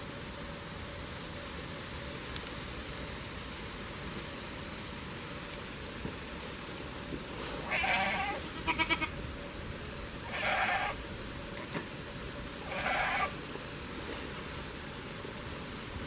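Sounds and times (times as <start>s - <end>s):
goat bleating: 7.6s - 9.2s, 10.2s - 11.0s, 12.6s - 13.4s.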